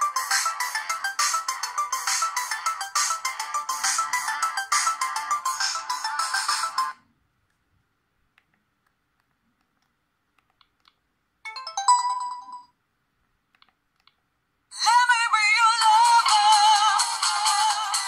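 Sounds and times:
bright electronic ringtone: 0.0s - 7.0s, 11.5s - 12.8s
synthesized ringtone: 0.0s - 7.0s, 11.5s - 12.8s.

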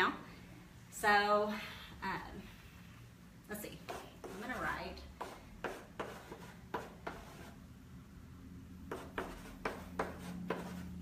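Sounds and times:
chalk scratching and tapping: 3.7s - 7.6s, 8.9s - 11.0s.

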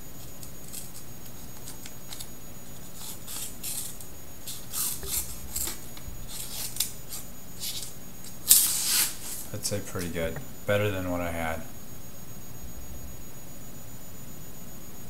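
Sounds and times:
knife slicing paper: 2.9s - 9.5s.

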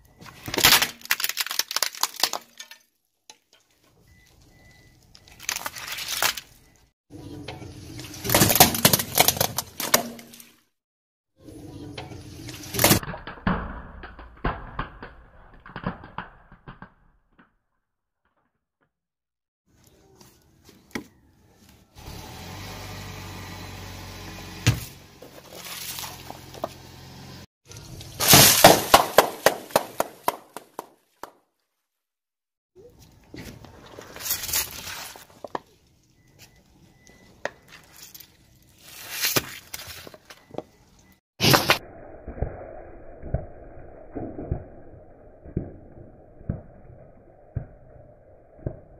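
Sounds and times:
tyre crushing plastic objects: 0.1s - 2.9s, 5.2s - 6.7s, 8.2s - 10.5s, 28.2s - 30.4s.

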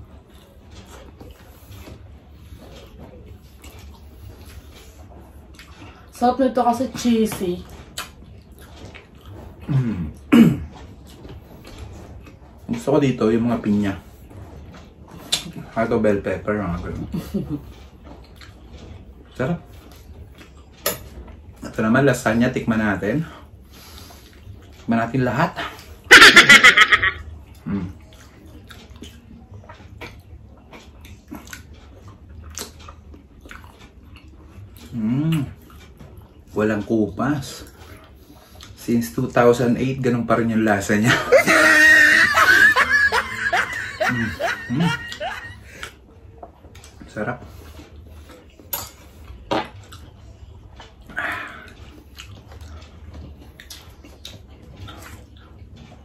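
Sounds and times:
people chewing food: 0.0s - 56.0s
chewing mouth smacks: 7.9s - 9.7s, 27.5s - 36.4s, 47.7s - 55.9s.

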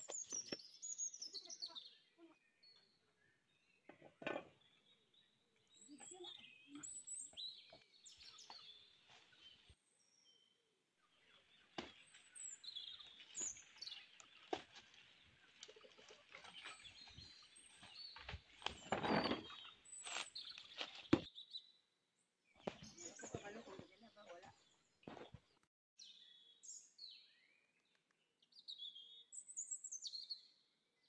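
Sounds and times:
faint bird chirps: 0.0s - 21.7s.

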